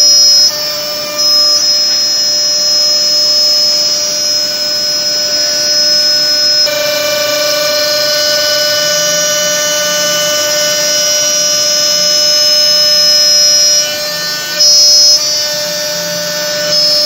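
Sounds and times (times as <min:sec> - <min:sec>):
drilling spindles whining: 0:00.0 - 0:17.0.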